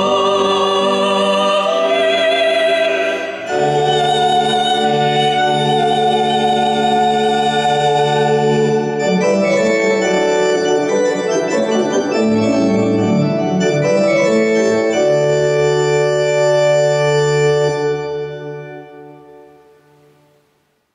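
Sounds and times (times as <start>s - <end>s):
keyboard organ chords: 0.0s - 20.6s.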